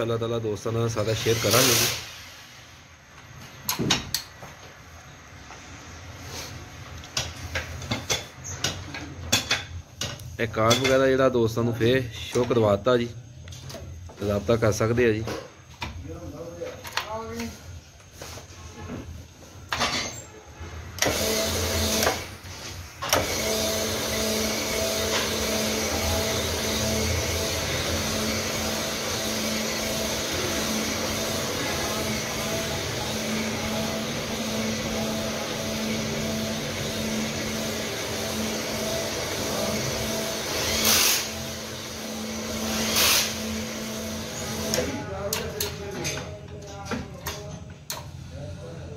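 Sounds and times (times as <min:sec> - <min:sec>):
loud bursts of hiss: 0:00.7 - 0:03.1, 0:21.0 - 0:44.8
honing machine grinding hum: 0:23.2 - 0:44.7.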